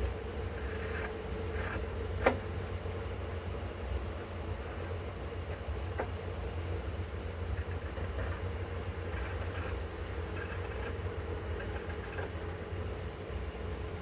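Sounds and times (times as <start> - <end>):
low rumble and hum: 0.0 - 14.0.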